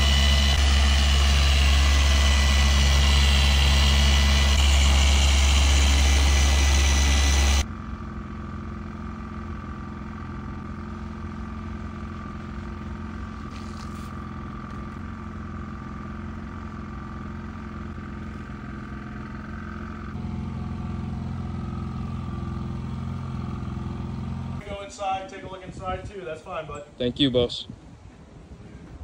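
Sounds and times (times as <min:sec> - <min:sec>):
machine polisher running: 0:00.0 - 0:24.6.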